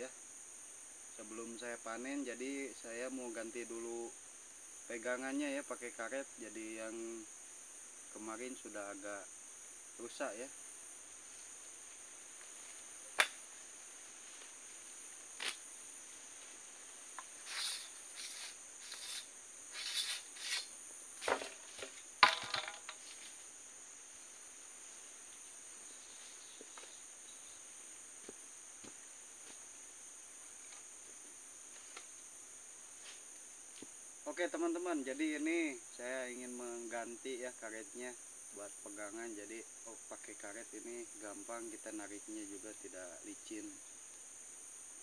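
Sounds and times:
insects chirring: 0.0s - 45.0s.

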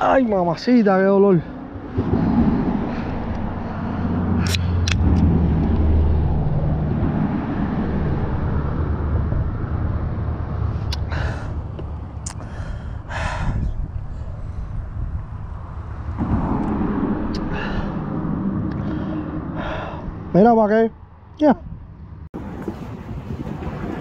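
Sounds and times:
wind buffeting microphone: 0.0s - 24.0s
vehicle engine rumble passing: 1.4s - 20.4s.

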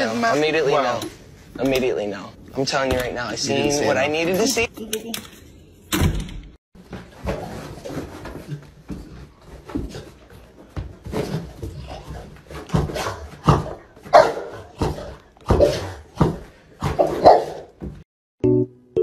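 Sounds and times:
young dog barking: 14.1s - 14.6s, 17.0s - 17.6s.

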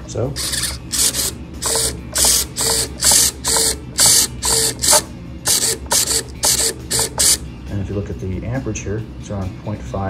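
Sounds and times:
servo motors buzzing: 0.4s - 7.4s.

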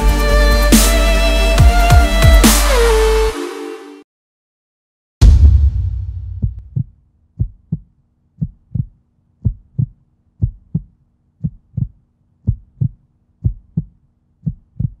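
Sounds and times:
heartbeat thumps: 5.2s - 15.0s.

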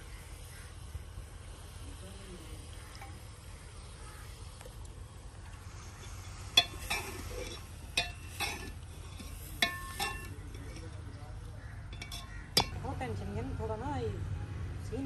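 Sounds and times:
metal utensil clinking on pot: 6.0s - 11.1s, 11.8s - 13.0s.

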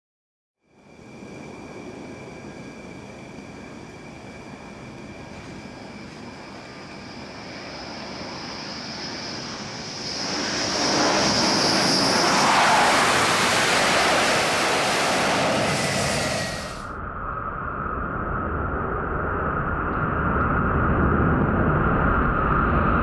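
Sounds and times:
high whine: 0.6s - 23.0s
jet engines roaring: 0.8s - 17.0s.

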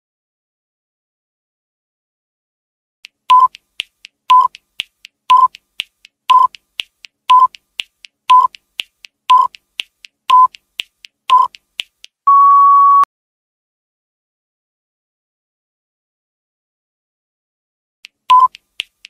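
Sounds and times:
quick ticking: 3.0s - 12.2s, 18.0s - 19.0s
short timer beeps: 3.3s - 3.6s, 4.3s - 4.6s, 5.3s - 5.6s, 6.3s - 6.6s, 7.3s - 7.6s, 8.3s - 8.6s, 9.3s - 9.6s, 10.3s - 10.6s, 11.3s - 11.6s, 12.3s - 13.1s, 18.3s - 18.6s
long steady beep: 12.3s - 13.1s, 18.3s - 18.5s.

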